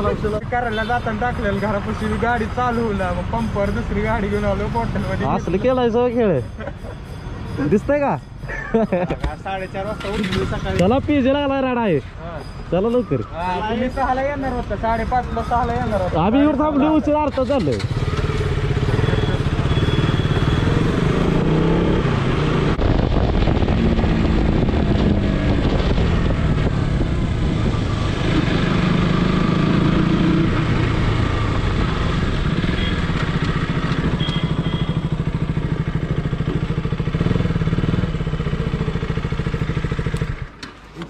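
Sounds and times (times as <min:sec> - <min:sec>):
motorcycle engine revving: 0:09.2 - 0:11.8, 0:14.4 - 0:40.6.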